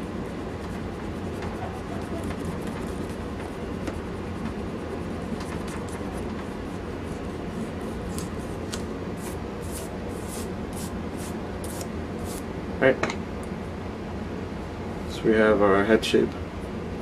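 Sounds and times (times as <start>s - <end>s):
eraser rubbing on paper: 0.0s - 12.4s
steady low hum: 0.0s - 17.0s.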